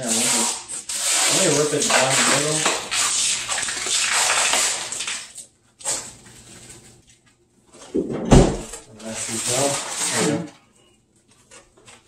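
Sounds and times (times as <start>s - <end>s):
plastic film tearing: 0.3s - 6.2s
loud thump: 8.0s - 8.7s.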